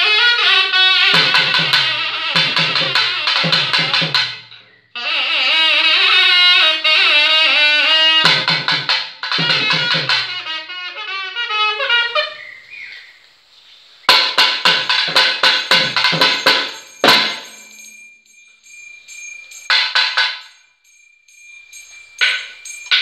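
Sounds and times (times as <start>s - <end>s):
nagaswaram ornamented phrase: 0.0s - 12.8s, 14.1s - 23.0s
thavil drum strokes: 1.0s - 4.6s, 8.2s - 10.4s, 14.1s - 23.0s.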